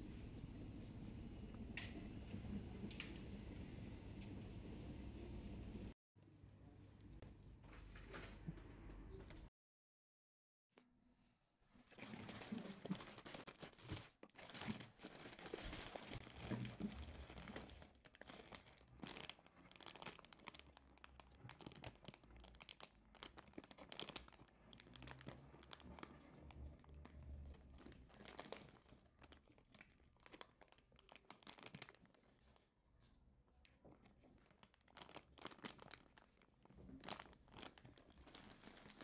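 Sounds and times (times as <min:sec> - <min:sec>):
plastic packaging crinkling: 0:11.9 - 0:32.6, 0:33.6 - 0:39.0.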